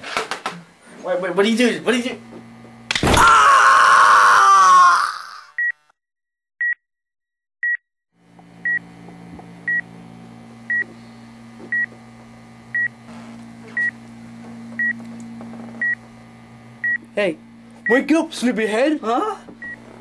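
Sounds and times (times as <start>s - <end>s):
man screaming: 3.0s - 5.6s
heart monitor beeping: 10.7s - 10.9s, 11.7s - 12.0s, 12.7s - 13.0s, 13.7s - 14.0s, 14.8s - 15.0s, 15.8s - 16.1s, 19.6s - 19.9s.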